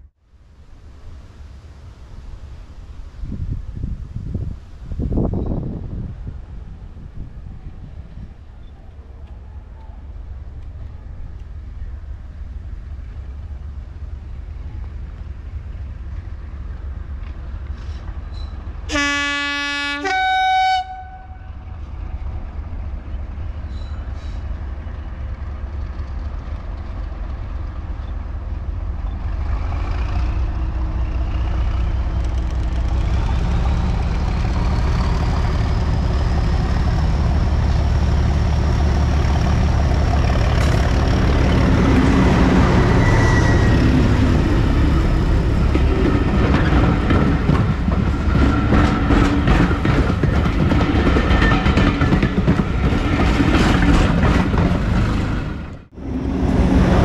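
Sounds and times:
two-tone locomotive horn: 18.9s - 21.7s, 42.1s - 44.3s
locomotive diesel engine: 21.7s - 57.0s
rising whistle: 42.5s - 44.4s.

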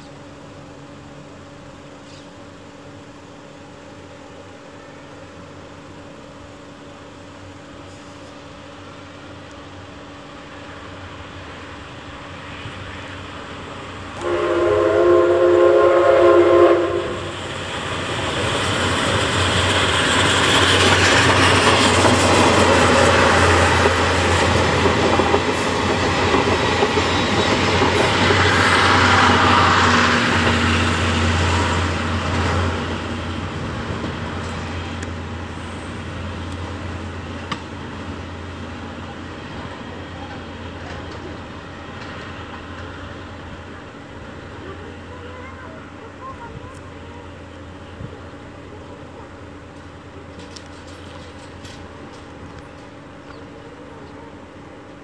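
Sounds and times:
train rolling rumble and clatter: 0.0s - 55.0s
steam whistle blast: 14.2s - 17.3s.

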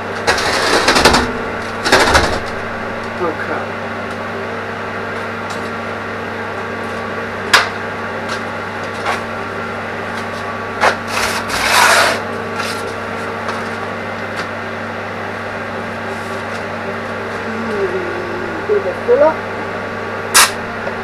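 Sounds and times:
electrical hum: 0.0s - 21.0s
scraping rasp: 11.1s - 12.8s.

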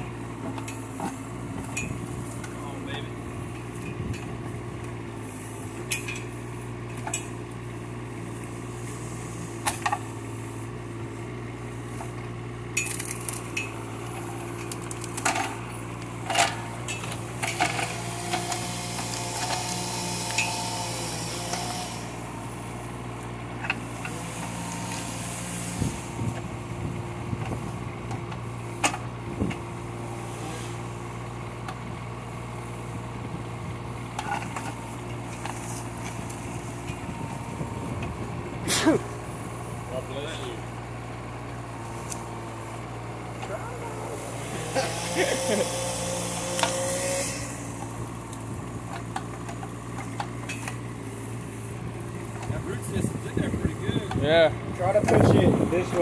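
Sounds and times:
diesel engine running: 0.0s - 56.0s
metallic clanks from excavator bucket: 5.8s - 6.3s, 16.2s - 17.9s.

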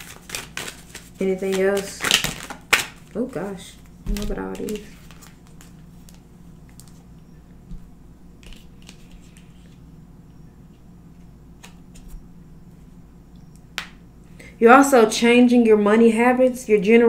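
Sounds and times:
cards clicking and flicking: 0.0s - 3.0s, 4.0s - 7.0s, 11.6s - 12.1s
steady low hum: 0.0s - 17.0s.

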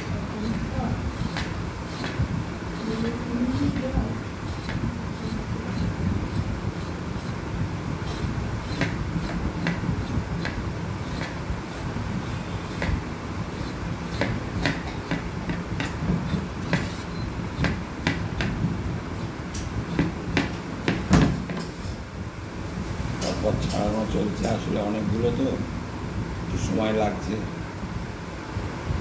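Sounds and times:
knife scraping vegetables: 0.0s - 7.4s, 8.0s - 21.0s
steady low hum: 0.0s - 29.0s.

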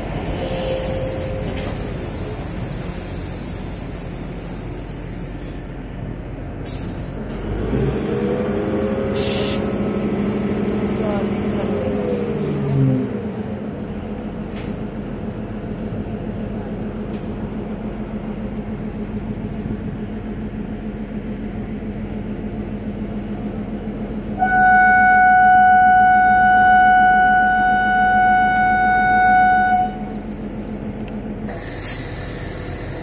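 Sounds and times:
locomotive engine humming: 0.0s - 33.0s
long train horn blast: 0.4s - 1.7s, 24.3s - 30.3s.

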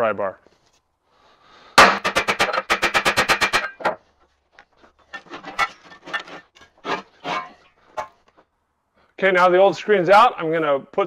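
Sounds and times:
metal knocks and clanks: 1.8s - 4.0s, 5.1s - 8.2s.

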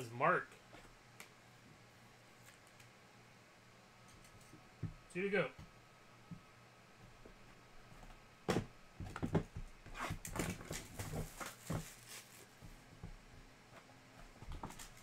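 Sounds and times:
plastic shrink-wrap crinkling: 10.5s - 12.5s.

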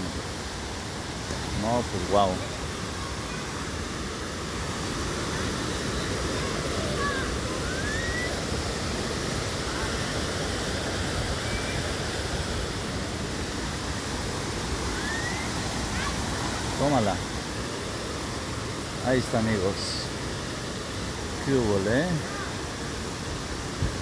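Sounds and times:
waterfall rushing: 0.0s - 24.0s
faint rising whistles: 7.5s - 8.4s, 14.9s - 15.6s.

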